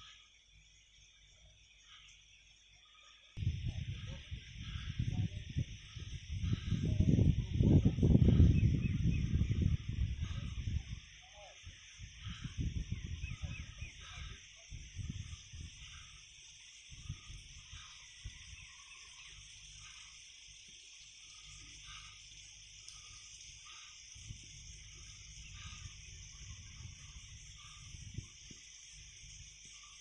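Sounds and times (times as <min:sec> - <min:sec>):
wind buffeting microphone: 0:03.4 - 0:20.0, 0:23.0 - 0:29.8.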